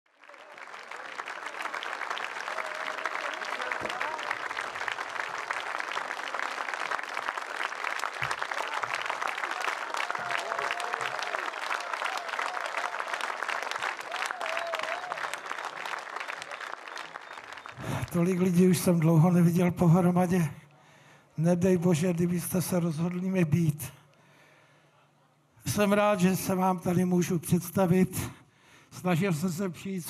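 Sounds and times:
audience applauding: 0.1 - 19.4.

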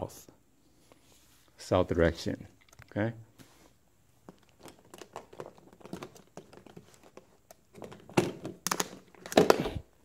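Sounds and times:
plastic packaging crinkling: 4.3 - 9.7.

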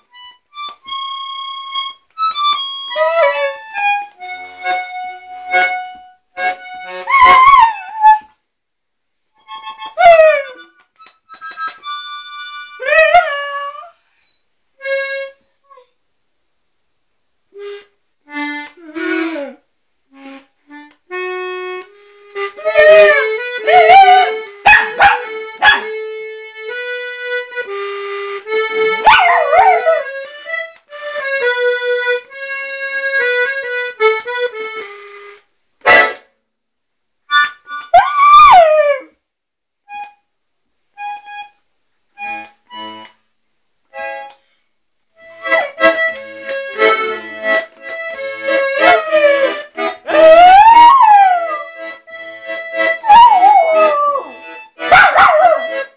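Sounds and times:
puppy howling: 7.0 - 8.3, 12.8 - 14.0, 22.6 - 25.9, 29.0 - 30.1, 38.0 - 39.1, 48.7 - 51.8, 53.0 - 55.8
instrument playing long notes: 45.2 - 54.8.

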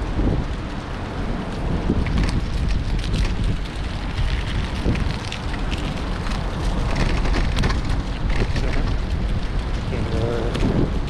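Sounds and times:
crackles and clicks: 0.0 - 11.0
wind buffeting microphone: 0.0 - 11.0.

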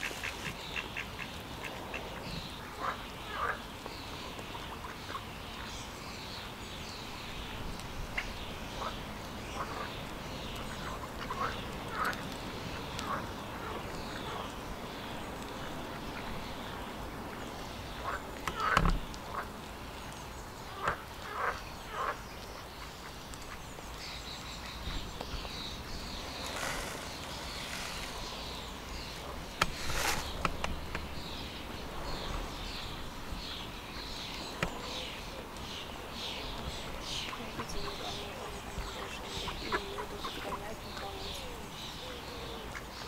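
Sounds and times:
birds calling: 0.0 - 43.0.

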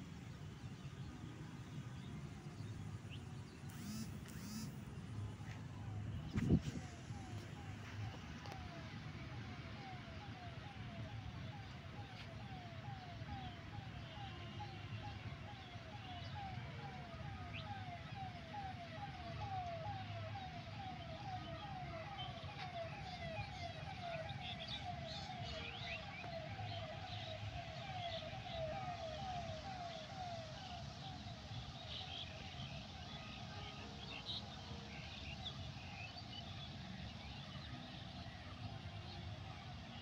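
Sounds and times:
traffic rumble: 0.0 - 31.8
siren-like falling notes: 3.7 - 13.4.

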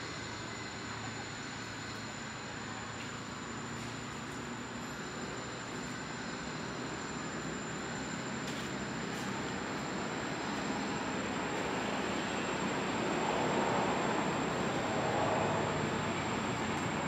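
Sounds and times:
high steady whine: 0.0 - 17.0.

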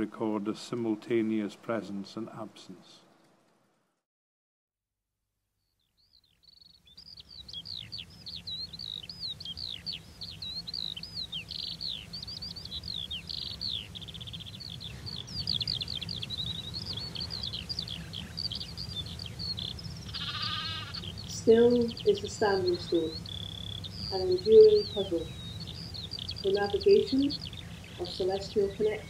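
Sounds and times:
songbird singing: 5.6 - 29.0
low steady rumble: 8.1 - 29.0.

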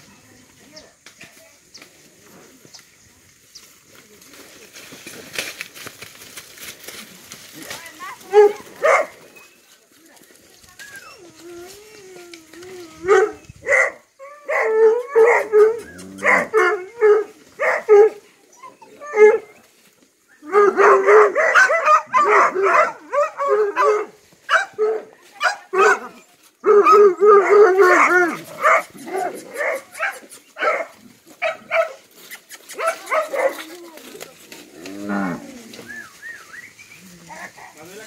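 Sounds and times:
dogs barking: 8.3 - 9.2, 13.0 - 18.2, 20.5 - 32.0, 32.8 - 33.7.

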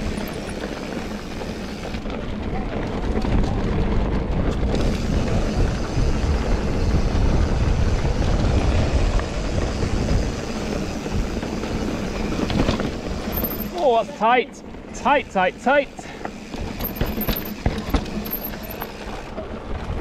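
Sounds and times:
bike tyres rolling on pebbles: 0.0 - 20.0
wind noise on microphone: 1.7 - 13.4.

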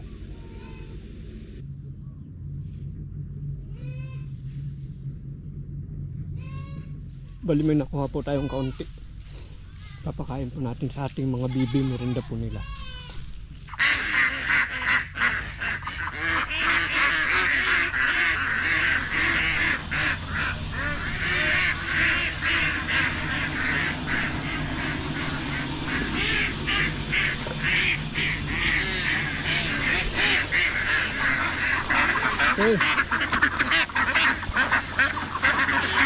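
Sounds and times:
ducks quacking: 13.6 - 36.0.

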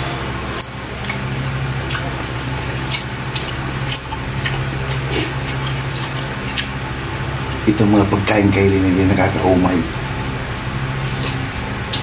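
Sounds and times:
steady low hum: 0.0 - 12.0
wet chewing and smacking: 0.6 - 7.7, 10.5 - 12.0
sharp wet clicks: 1.8 - 6.8.

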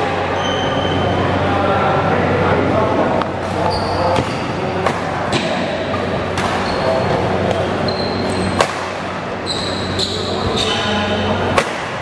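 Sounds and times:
shoes squeaking on court: 0.3 - 1.0, 3.5 - 4.6, 6.4 - 8.7, 9.4 - 11.0
racket hitting shuttlecock: 4.2 - 6.6, 8.5 - 9.1, 11.5 - 12.0.

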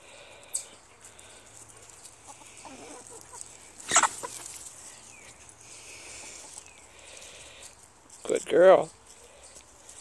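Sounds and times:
hens clucking softly: 1.2 - 5.5
hen squawking: 2.6 - 4.4.

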